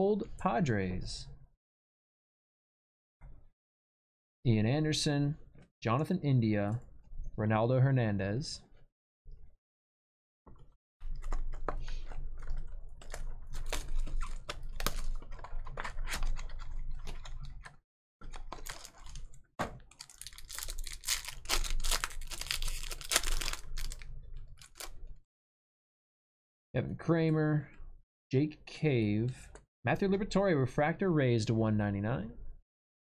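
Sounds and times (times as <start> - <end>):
trading cards being flipped through: 13.5 - 24.0, 24.6 - 25.0.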